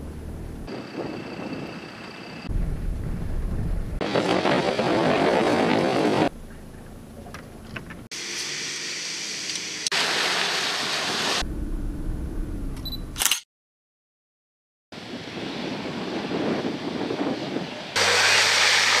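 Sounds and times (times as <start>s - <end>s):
low engine rumble: 0.0s - 4.1s, 6.2s - 8.1s, 11.4s - 13.2s
off-road vehicle engine: 0.0s - 10.1s, 11.2s - 13.3s.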